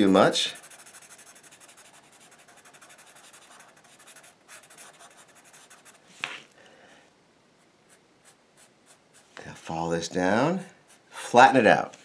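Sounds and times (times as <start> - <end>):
marker scribbling on paper: 0.0 - 6.0.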